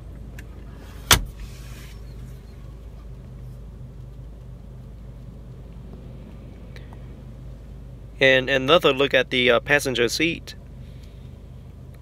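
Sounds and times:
low hum: 0.0s - 9.0s.

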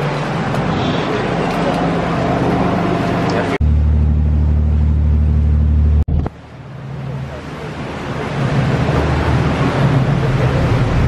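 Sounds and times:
sea wash: 0.0s - 3.6s, 6.3s - 11.0s
water rushing past hull: 6.1s - 11.0s.

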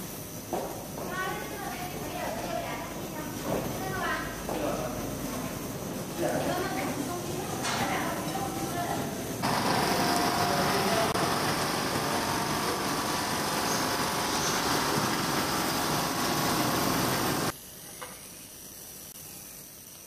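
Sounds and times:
quiet machine hum: 0.0s - 20.0s
air compressor running: 8.7s - 17.6s.

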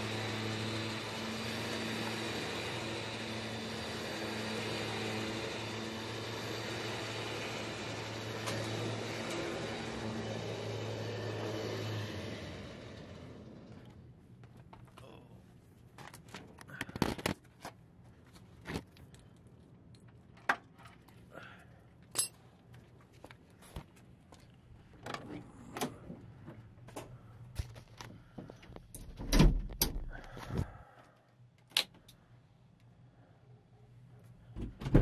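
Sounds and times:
phone handling clicks and rustling: 16.0s - 17.8s.

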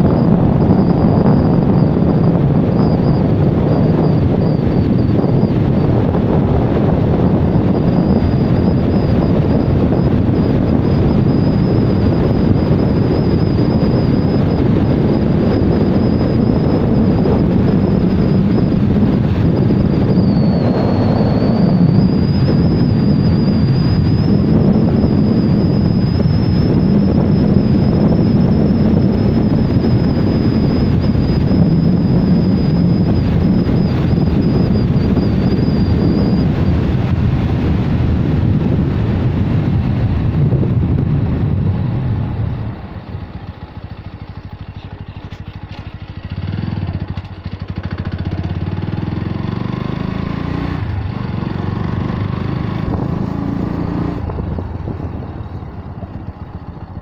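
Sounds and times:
thin high whine: 0.0s - 56.9s
vehicle road noise: 0.0s - 57.0s
wind rush on microphone: 0.0s - 57.0s.

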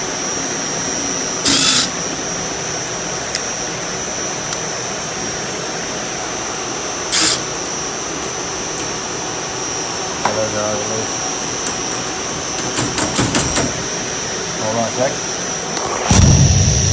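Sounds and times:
machine-room air noise: 0.0s - 16.9s
cordless drill bursts: 1.0s - 2.2s, 7.0s - 7.7s.

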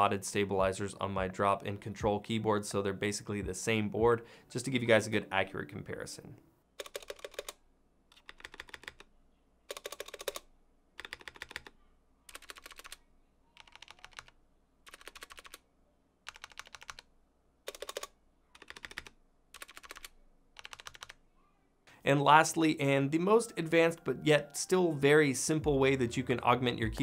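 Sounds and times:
mechanical keyboard keys clicking: 6.8s - 9.1s, 9.7s - 11.7s, 12.3s - 13.0s, 13.6s - 15.6s, 16.3s - 17.1s, 17.7s - 21.2s.

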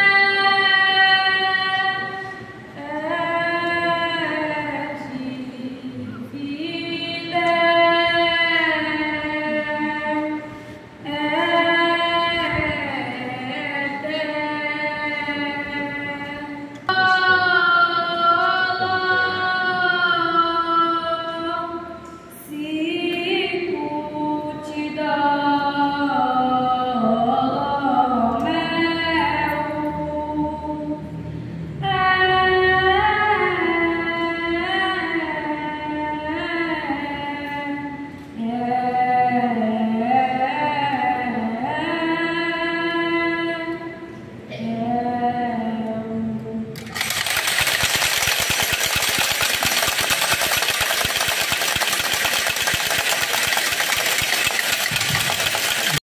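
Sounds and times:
woman singing unaccompanied: 0.0s - 31.1s, 31.8s - 47.8s
singer breathing: 10.5s - 11.0s.

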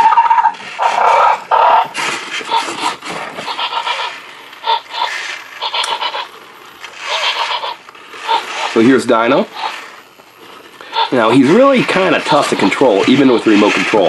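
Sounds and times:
toy dinosaur electronic growls: 3.4s - 6.3s, 7.0s - 8.8s, 9.5s - 9.9s.

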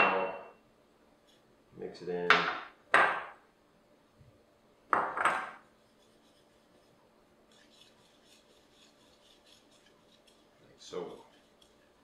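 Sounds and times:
spice scraping in ceramic bowl: 5.6s - 12.0s.

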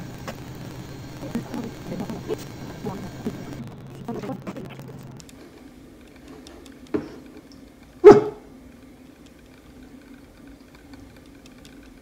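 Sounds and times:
young dog barking: 8.0s - 8.4s.

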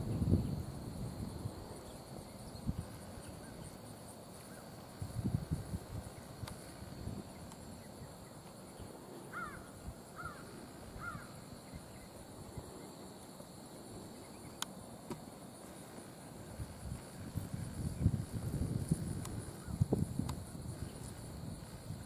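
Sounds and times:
high insect drone: 0.0s - 22.0s
distant bird calls: 6.1s - 13.1s.

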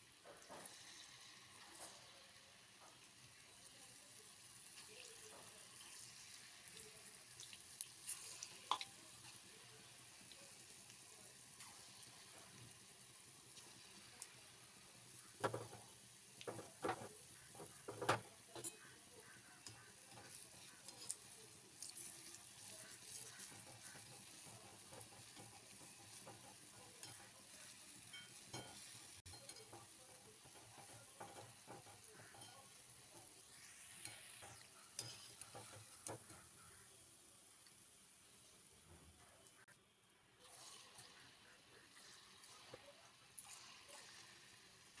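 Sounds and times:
oil sizzling: 0.0s - 45.0s
utensil knocking against pan: 16.5s - 18.8s.

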